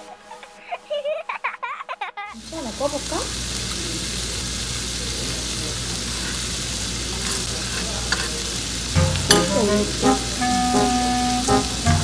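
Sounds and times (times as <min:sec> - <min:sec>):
background music with held notes: 0:00.0 - 0:01.7, 0:09.0 - 0:12.0
meat sizzling on a grill: 0:02.4 - 0:12.0.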